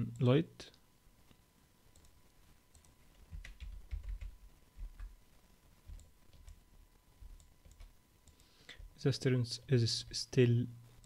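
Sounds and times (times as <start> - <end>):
faint keyboard typing: 1.3 - 5.2, 5.8 - 9.0.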